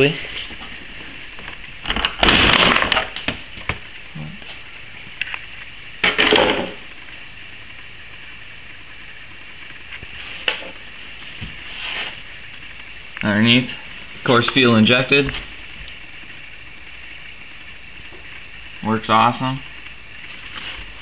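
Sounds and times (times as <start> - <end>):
rustling and scraping on plastic: 10.0 - 12.4, 20.2 - 21.0.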